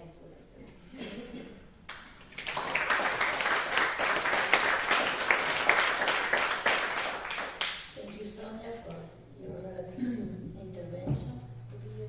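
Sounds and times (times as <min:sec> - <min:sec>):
small audience applauding: 0:01.9 - 0:08.0.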